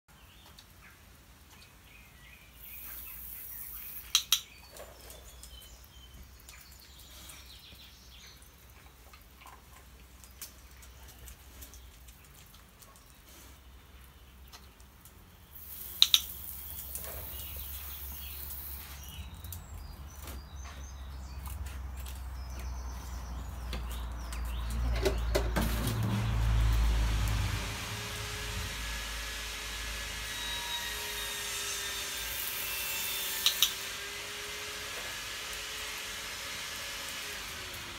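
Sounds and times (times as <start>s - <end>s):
hose spray gun hissing: 15.6s - 19.2s, 27.5s - 37.9s.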